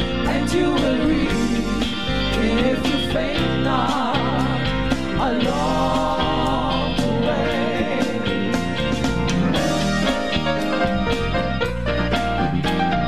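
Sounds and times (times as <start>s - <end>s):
band playing: 0.0s - 13.0s
female vocal group singing: 0.1s - 8.6s.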